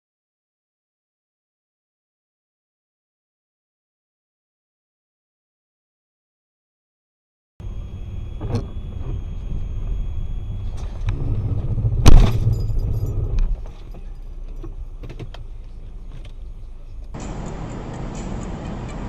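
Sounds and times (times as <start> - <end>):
car collision bang: 12.0 - 13.0.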